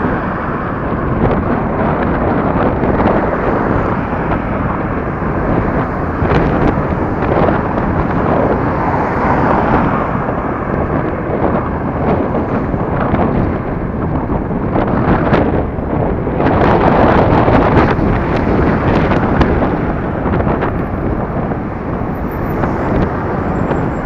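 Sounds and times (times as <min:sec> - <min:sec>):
road and traffic noise: 0:00.0 - 0:24.0
wind buffeting microphone: 0:00.0 - 0:24.0.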